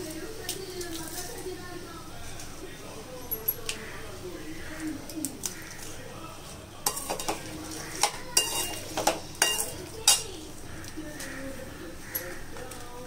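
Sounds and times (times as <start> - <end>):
metal spoon scraping metal pan: 6.8 - 10.5.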